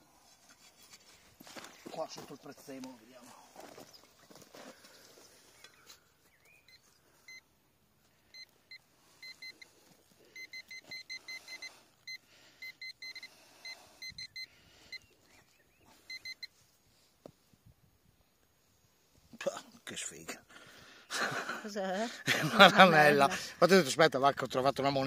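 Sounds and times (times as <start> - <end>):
soil rustling: 0.1 - 7.0
metal detector short high beeps: 8.4 - 9.7, 10.4 - 15.1, 16.1 - 16.5.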